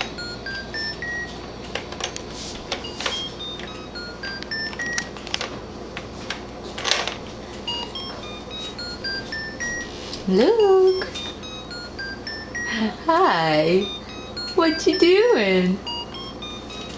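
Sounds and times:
electronic toy beeps: 0:00.2 - 0:01.3, 0:02.8 - 0:05.1, 0:07.7 - 0:09.9, 0:10.9 - 0:12.8, 0:13.8 - 0:16.9.

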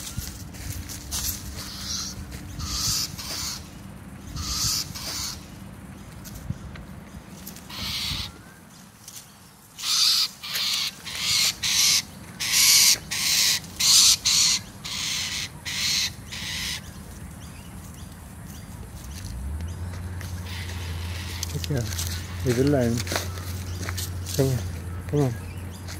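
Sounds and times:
parrot screeching: 0:07.7 - 0:08.4, 0:09.8 - 0:16.8.

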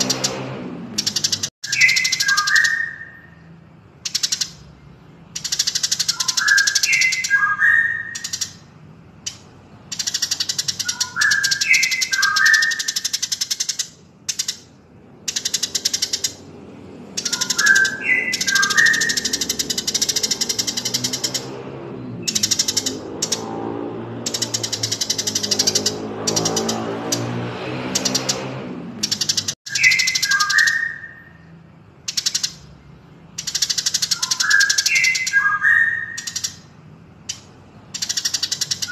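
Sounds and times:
fast high bird chattering: 0:00.0 - 0:03.4, 0:04.0 - 0:21.6, 0:22.2 - 0:23.5, 0:24.2 - 0:32.7, 0:33.3 - 0:38.9
whistled bird phrase: 0:01.6 - 0:03.5, 0:06.0 - 0:08.5, 0:10.4 - 0:13.2, 0:17.2 - 0:19.5, 0:29.7 - 0:31.5, 0:33.7 - 0:36.6.

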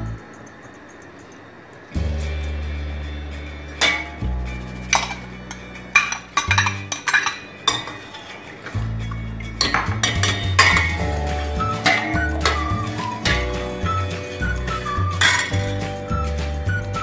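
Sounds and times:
ladle clinking on pot: 0:03.8 - 0:04.3, 0:04.9 - 0:11.2, 0:11.8 - 0:14.4, 0:15.2 - 0:15.8
ladle stirring in a pot: 0:04.9 - 0:15.8
beat music with bass: 0:08.8 - 0:17.0.

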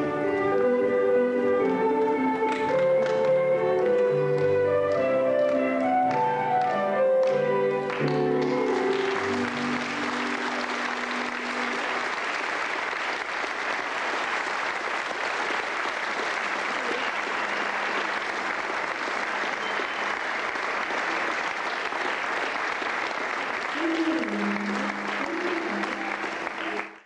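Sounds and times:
live band held notes: 0:00.0 - 0:12.2
audience applause: 0:01.6 - 0:27.0.

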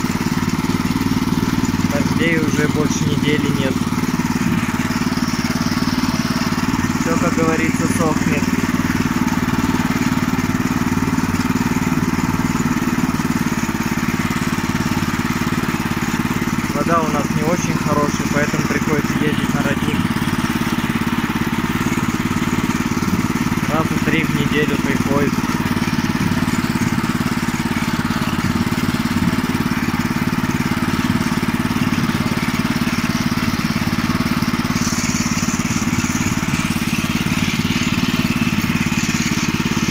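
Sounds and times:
small petrol engine running: 0:00.0 - 0:39.9.

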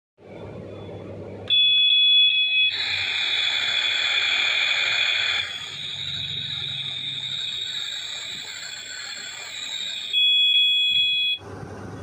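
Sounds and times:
toy electronic beep: 0:01.5 - 0:11.4
toy electronic hiss: 0:02.3 - 0:10.8.

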